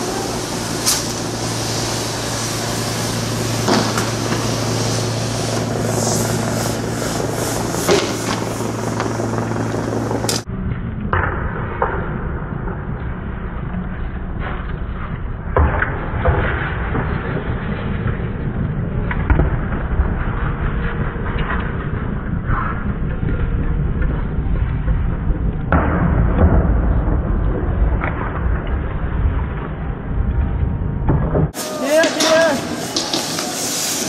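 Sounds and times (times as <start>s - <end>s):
sharp bangs: 0.0s - 10.5s
low hum and hiss: 0.0s - 15.5s.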